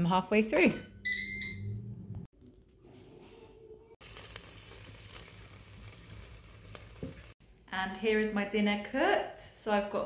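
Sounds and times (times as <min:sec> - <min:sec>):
meat sizzling softly: 0:04.0 - 0:07.4.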